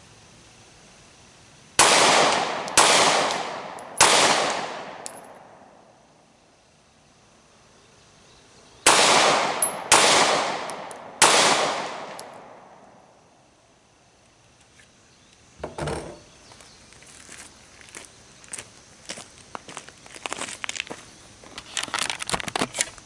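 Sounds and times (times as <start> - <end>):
pistol shots: 1.8 - 5.6, 8.8 - 12.8.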